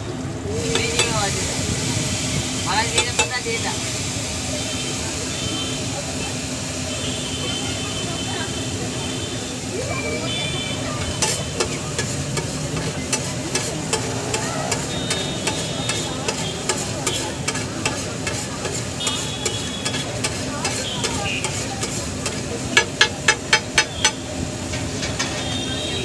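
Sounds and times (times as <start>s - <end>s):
spices sizzling in fat: 0.0s - 26.0s
spatula clanking on griddle: 0.6s - 1.3s, 2.9s - 3.4s, 11.0s - 25.7s
spatula scraping griddle: 0.7s - 1.2s, 10.8s - 25.6s.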